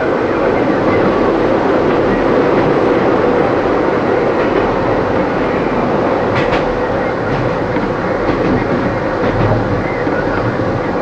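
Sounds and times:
train wheels rumbling on rail: 0.0s - 11.0s
wheels clacking over rail joint: 4.3s - 11.0s.

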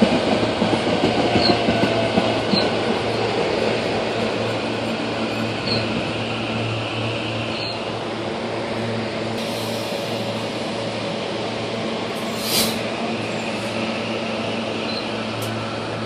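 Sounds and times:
train low hum: 0.0s - 16.0s
sharp hiss of air: 9.4s - 10.4s, 12.2s - 12.9s.

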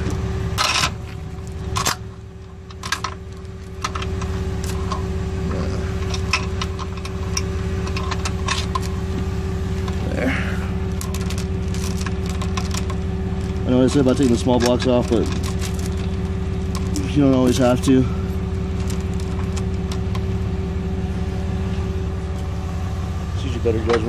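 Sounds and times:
truck engine idling: 0.0s - 24.0s.

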